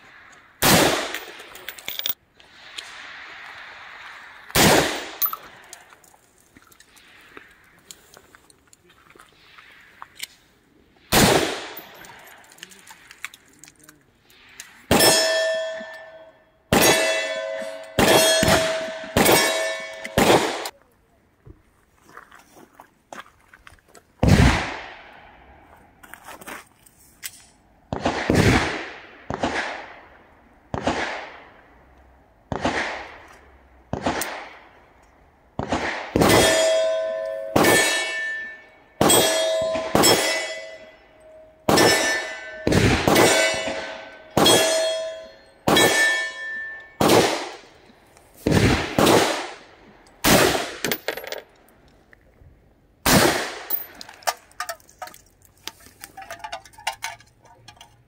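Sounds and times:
rifle shots echoing: 0:00.6 - 0:02.2, 0:04.5 - 0:05.6, 0:11.1 - 0:12.4, 0:16.7 - 0:20.7, 0:24.2 - 0:25.3, 0:27.9 - 0:31.8, 0:32.5 - 0:33.3, 0:33.9 - 0:34.8, 0:35.6 - 0:40.9, 0:41.6 - 0:47.8, 0:48.4 - 0:51.4, 0:53.0 - 0:54.1
small metal clinks: 0:01.2 - 0:02.2, 0:05.2 - 0:07.0, 0:50.9 - 0:51.6, 0:53.7 - 0:58.0
metallic ring: 0:05.2 - 0:05.5, 0:14.9 - 0:20.2, 0:36.4 - 0:47.0.

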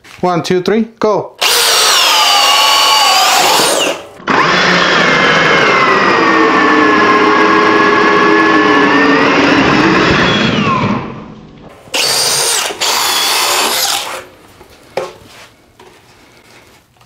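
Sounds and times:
drill boring through wood: 0:01.4 - 0:11.1, 0:11.9 - 0:14.3
drill motor whining: 0:01.4 - 0:11.3, 0:11.9 - 0:14.3.

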